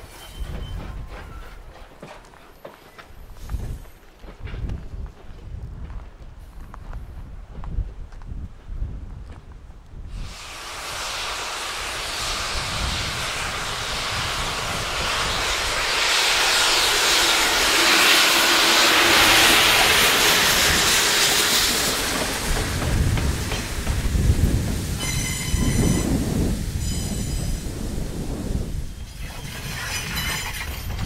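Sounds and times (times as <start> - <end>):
steam locomotive hissing steam: 10.1 - 31.0.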